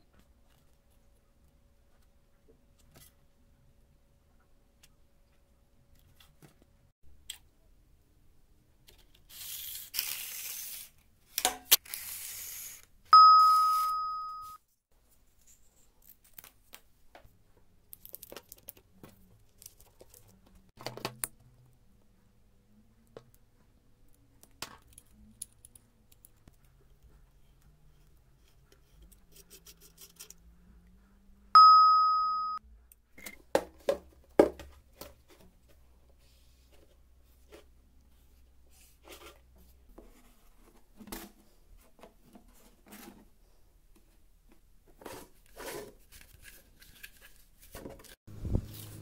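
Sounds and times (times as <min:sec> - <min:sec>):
bright metallic ding: 0:13.2 - 0:14.6, 0:31.6 - 0:32.6.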